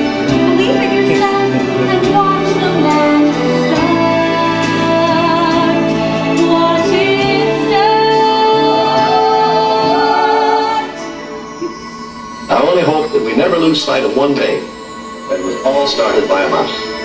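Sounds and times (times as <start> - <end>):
woman singing: 0.0 - 11.1
orchestral ballad: 0.0 - 17.0.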